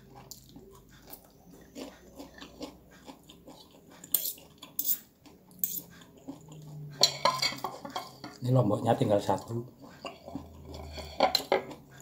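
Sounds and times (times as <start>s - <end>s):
person chewing noodles: 0.0s - 8.4s, 9.7s - 12.0s
cutlery clinking on ceramic plate: 7.0s - 8.4s.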